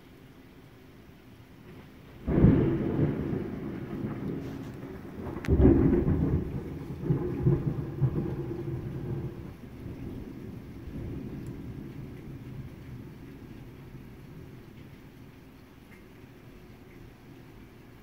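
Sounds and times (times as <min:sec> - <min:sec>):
thunder clap and rumble: 0:01.6 - 0:17.1
sharp thunder crack: 0:02.2 - 0:14.6.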